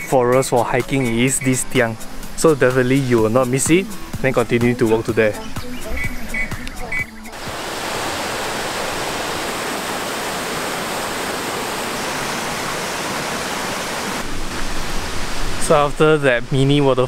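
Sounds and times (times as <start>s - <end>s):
waterfall rushing: 7.3s - 17.0s.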